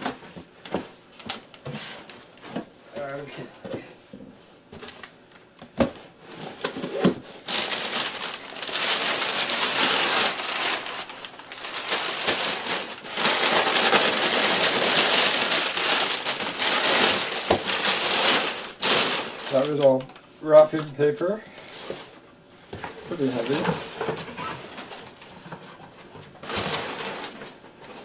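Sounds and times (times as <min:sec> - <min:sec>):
packing paper crinkling: 0:06.4 - 0:22.2, 0:22.8 - 0:28.0.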